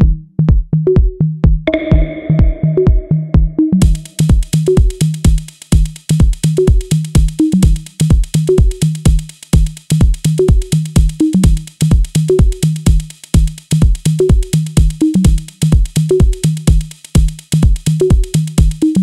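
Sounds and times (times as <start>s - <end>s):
electronic dance music: 1.7s - 15.5s.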